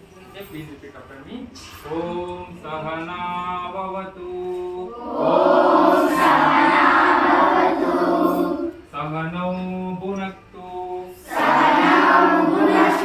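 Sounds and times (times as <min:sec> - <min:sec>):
voices chanting together: 0:04.9 - 0:08.9, 0:11.2 - 0:13.0.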